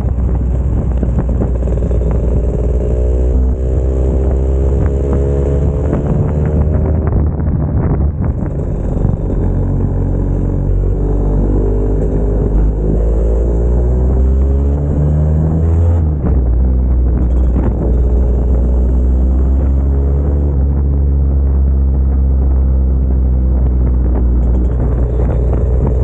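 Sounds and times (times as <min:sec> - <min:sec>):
motor scooter engine running: 0:00.0 - 0:11.4.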